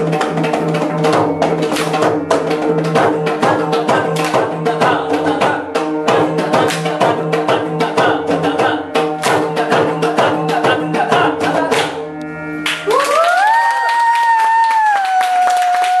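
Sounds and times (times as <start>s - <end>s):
barrel drum played fast: 0.0s - 12.0s
long high held note: 12.0s - 14.1s.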